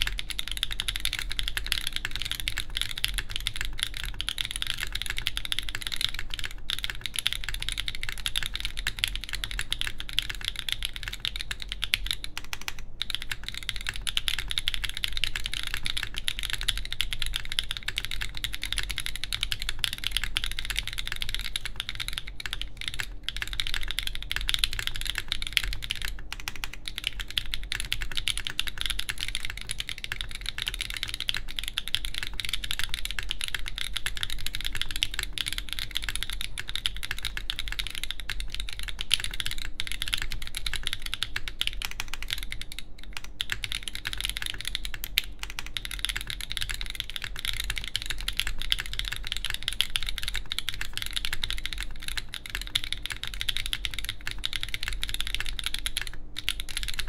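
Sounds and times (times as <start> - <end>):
mechanical keyboard typing: 0.0 - 57.0.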